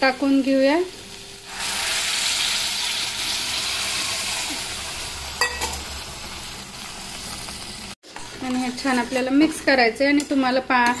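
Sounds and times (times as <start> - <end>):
loud sizzle of liquid in hot oil: 0.0 - 8.0.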